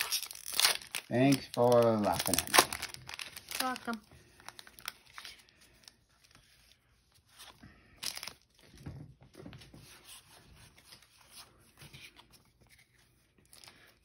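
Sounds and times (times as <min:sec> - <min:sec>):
foil wrapper crinkling: 0:00.0 - 0:06.5.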